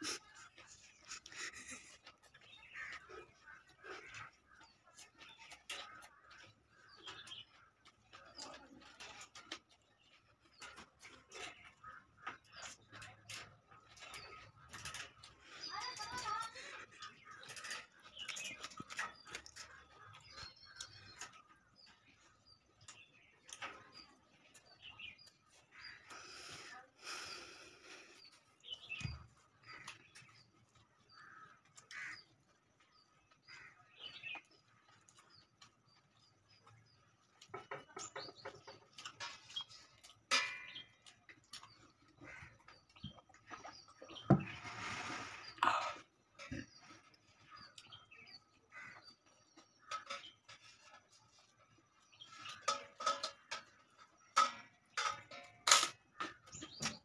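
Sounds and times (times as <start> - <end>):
chewing and mouth-smacking: 0.0 - 15.6
faint birds calling: 0.0 - 57.0.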